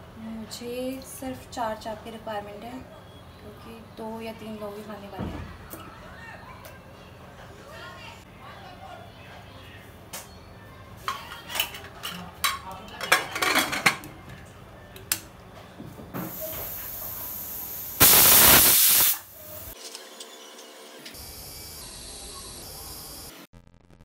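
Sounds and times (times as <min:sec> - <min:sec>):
metal lid clattering: 0:11.1 - 0:14.1
steam hissing from pressure cooker: 0:16.2 - 0:19.8, 0:21.2 - 0:23.4
loud burst of steam: 0:16.3 - 0:19.8.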